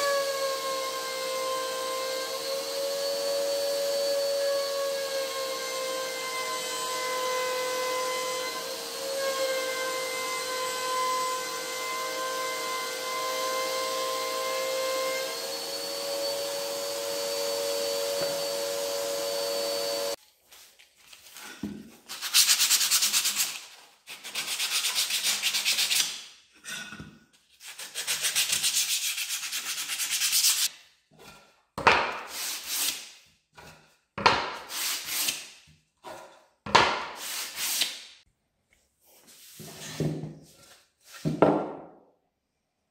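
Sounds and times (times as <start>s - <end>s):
power tool whine: 0.0s - 20.2s
sandpaper rasping on wood: 22.1s - 26.2s, 27.6s - 30.7s, 32.2s - 33.1s, 34.6s - 35.5s, 37.1s - 38.0s.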